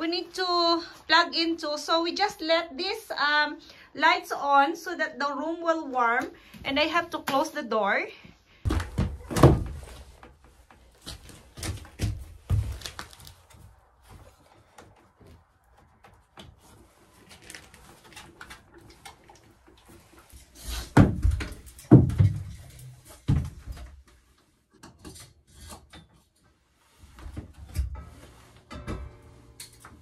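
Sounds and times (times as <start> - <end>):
knocks and clatter in wooden shed: 8.6 - 30.0.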